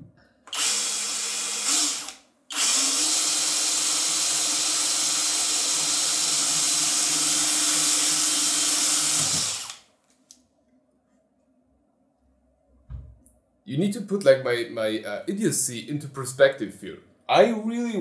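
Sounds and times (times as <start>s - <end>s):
cordless drill boring into plastic: 0.5s - 9.8s.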